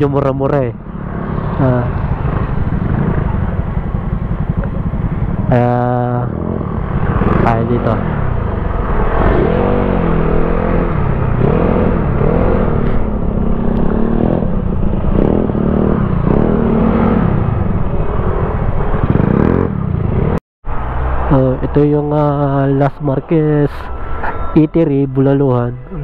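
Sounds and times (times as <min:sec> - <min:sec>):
scooter engines running: 0:00.8 - 0:21.3.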